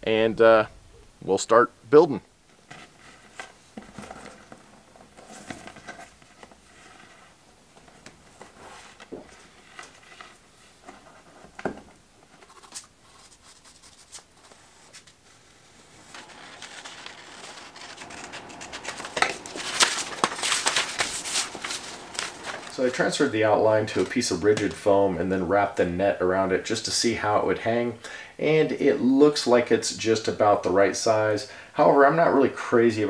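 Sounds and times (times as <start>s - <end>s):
paper rustling: 2.5s - 11.6s, 12.2s - 24.9s
soft clicks and scratches: 12.2s - 22.9s.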